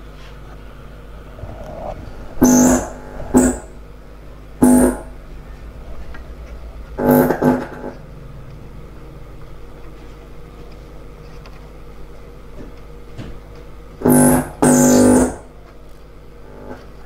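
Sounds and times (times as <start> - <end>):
amplifier hum: 0.6 - 8.0
short loud buzzes: 2.4 - 3.8.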